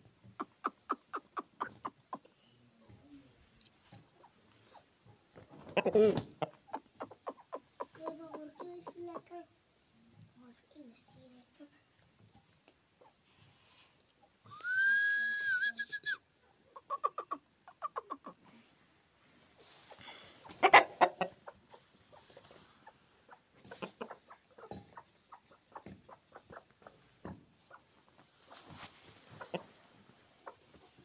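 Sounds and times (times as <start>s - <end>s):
chickens clucking: 0.0s - 9.6s, 12.0s - 13.3s, 16.4s - 18.6s, 19.4s - 31.0s
whistle-like call: 14.4s - 16.3s.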